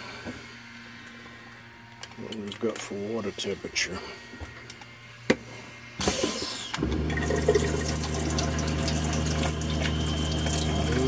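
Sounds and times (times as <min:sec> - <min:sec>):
water pump humming: 0:06.0 - 0:11.0
water rushing into steel sink: 0:06.9 - 0:11.0.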